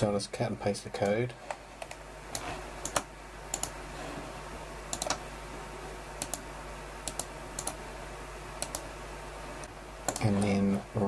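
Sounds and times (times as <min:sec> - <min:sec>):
faint low hum: 0:00.0 - 0:11.0
computer keys and mouse clicks: 0:01.8 - 0:03.8, 0:04.9 - 0:05.2, 0:06.2 - 0:06.4, 0:07.0 - 0:07.8, 0:08.6 - 0:08.9, 0:10.1 - 0:10.6.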